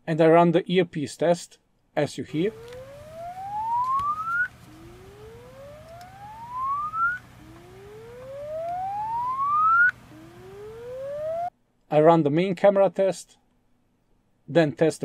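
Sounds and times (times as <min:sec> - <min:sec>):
rising test tone from phone earpiece: 0:02.4 - 0:11.5.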